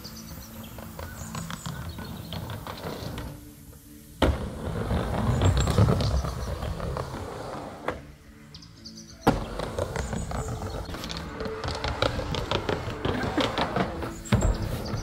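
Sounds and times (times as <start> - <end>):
skateboard wheels clacking: 0.0 - 8.2, 9.2 - 15.0
skateboard rolling rumble: 0.0 - 15.0.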